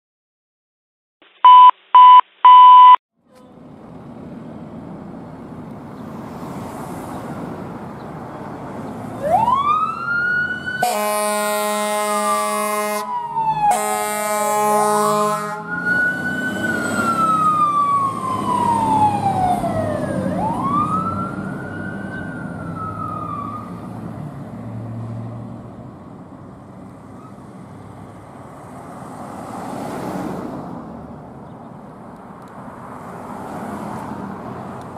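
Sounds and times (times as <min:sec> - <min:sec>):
street traffic: 0:01.4 - 0:34.9
siren wailing: 0:09.2 - 0:23.8
fire engine air horn blasts: 0:10.8 - 0:15.8.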